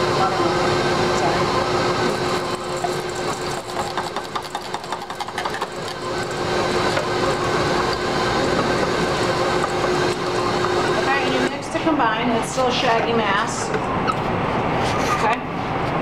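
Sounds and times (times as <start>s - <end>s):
stand mixer beating dough: 0.0s - 12.0s.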